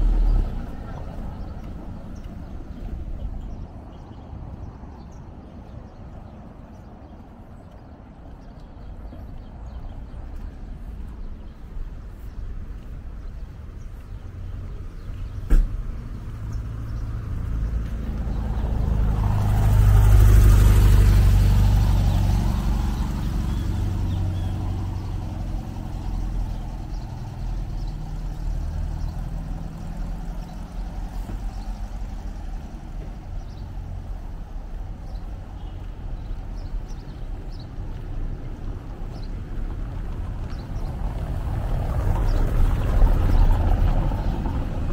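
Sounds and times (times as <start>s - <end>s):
motor vehicle passing: 0.0s - 3.7s, 9.3s - 44.9s
low traffic rumble: 0.0s - 44.9s
sharp knock: 15.4s - 15.8s.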